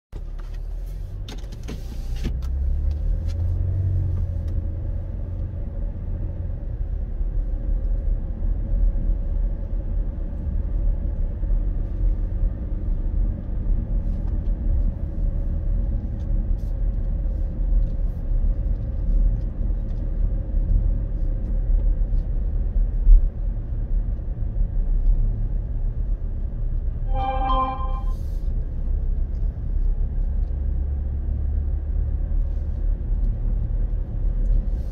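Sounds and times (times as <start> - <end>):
brief pitched tone: 27.1 - 28.2.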